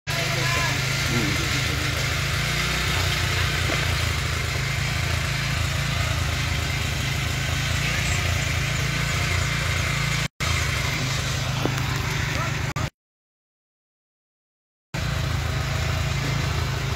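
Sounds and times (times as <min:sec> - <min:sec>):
small engine running: 0:00.1 - 0:12.9, 0:15.0 - 0:16.9.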